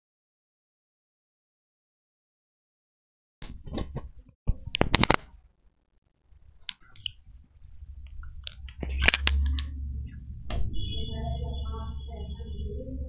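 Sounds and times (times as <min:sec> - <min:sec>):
low rumble: 0:07.2 - 0:13.0.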